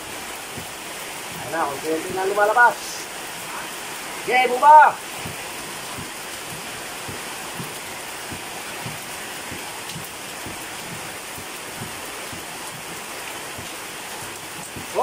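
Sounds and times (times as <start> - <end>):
rain-like hiss: 0.0 - 15.0.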